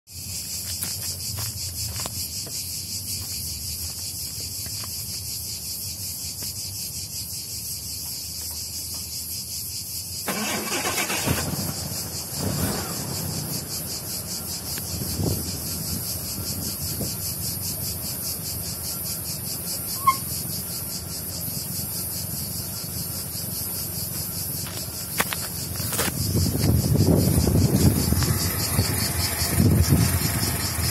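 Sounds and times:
cicadas buzzing: 0.1 - 30.9
engine starter cranking: 10.2 - 13.5
car engine revving and idling: 10.4 - 16.7, 20.6 - 30.9.

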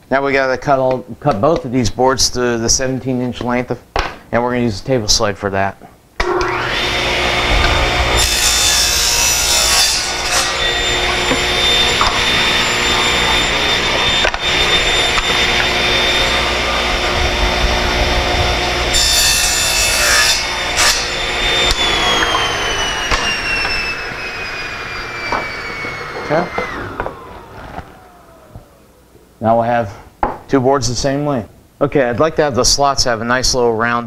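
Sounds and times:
saw blade cutting board: 6.2 - 28.1
table saw motor whine: 6.2 - 29.0.

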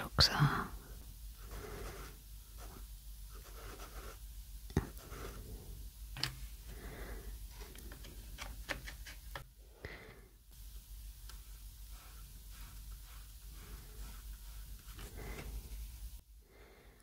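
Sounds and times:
pastel stick scratching paper: 1.4 - 4.2, 4.8 - 5.4, 11.3 - 15.8.

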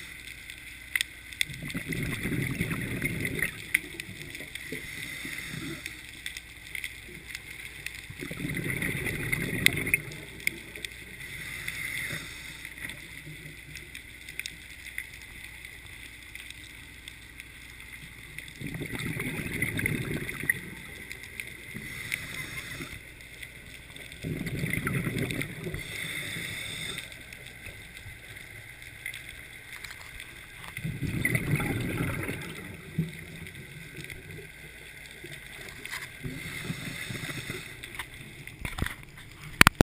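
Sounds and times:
small clicks: 0.1 - 1.9, 3.0 - 8.2, 8.8 - 39.8
gurgling exhaled bubbles: 1.4 - 6.0, 8.0 - 13.7, 18.2 - 28.0, 29.4 - 39.8
regulator breathing underwater: 4.5 - 6.2, 11.1 - 13.0, 21.6 - 23.2, 24.2 - 27.4, 36.0 - 38.1.

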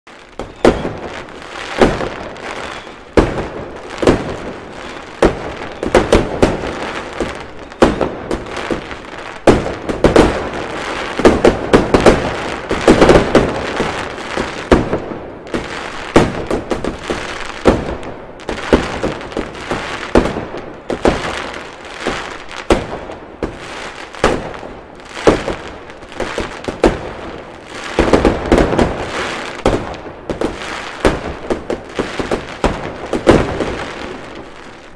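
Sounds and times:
fireworks crackling and banging: 0.1 - 34.9.

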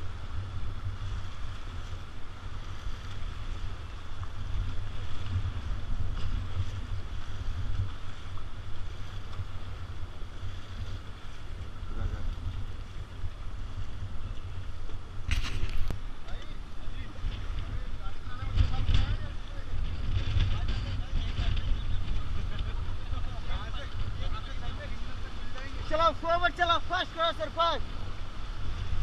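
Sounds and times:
wind buffeting microphone: 0.0 - 29.0
river water rushing: 23.4 - 29.0.

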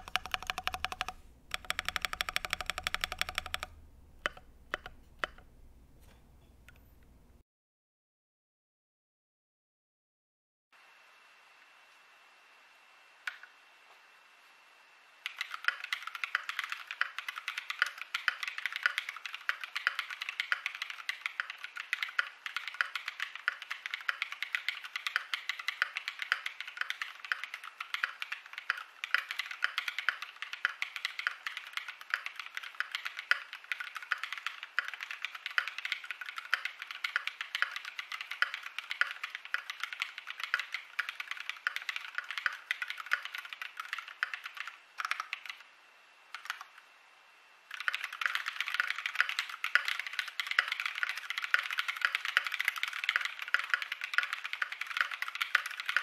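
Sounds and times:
typing on mechanical keyboard: 0.0 - 5.5, 15.2 - 45.6, 46.3 - 46.7, 47.7 - 56.0.

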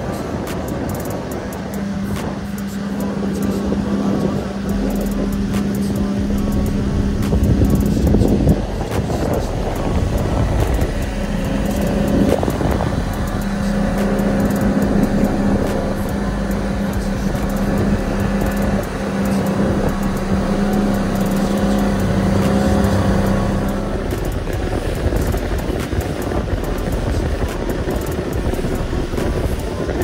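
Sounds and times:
outboard motor droning: 0.0 - 30.0
wind and water spray rushing: 0.0 - 30.0.

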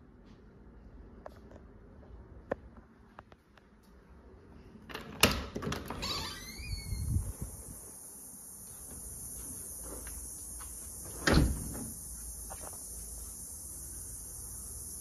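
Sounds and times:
high-pitched insect buzz: 6.1 - 15.0.

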